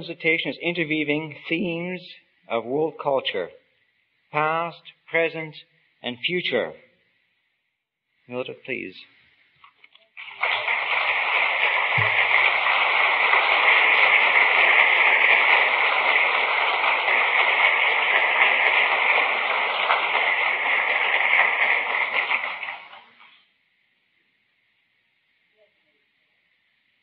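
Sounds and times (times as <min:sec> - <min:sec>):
audience applauding: 0:10.2 - 0:23.3.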